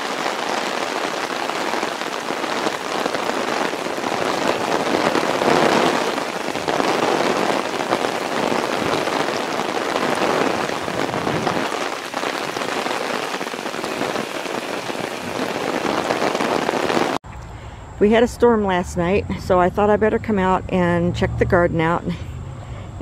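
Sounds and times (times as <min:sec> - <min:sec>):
rain falling on foliage: 0:00.0 - 0:17.2.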